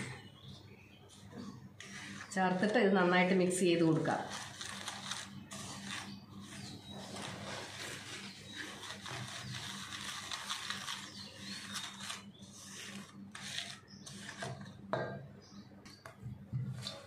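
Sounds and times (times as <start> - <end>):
whisk scraping steel bowl: 1.8 - 3.3, 4.0 - 14.8.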